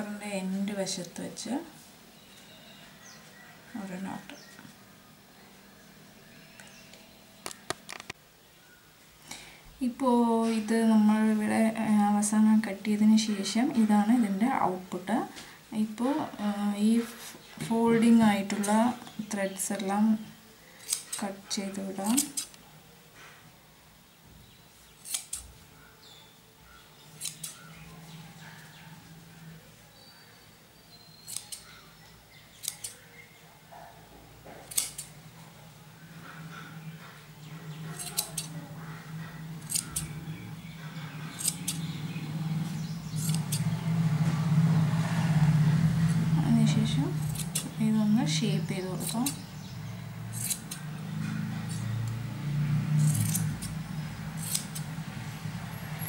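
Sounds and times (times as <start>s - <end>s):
scissors snipping yarn: 18.0s - 20.1s, 20.8s - 22.6s, 25.0s - 25.5s, 27.0s - 27.7s, 31.2s - 31.7s, 32.5s - 33.0s, 34.6s - 35.2s, 37.9s - 38.6s, 39.6s - 40.2s, 41.0s - 43.8s, 46.5s - 49.6s, 50.3s - 55.0s.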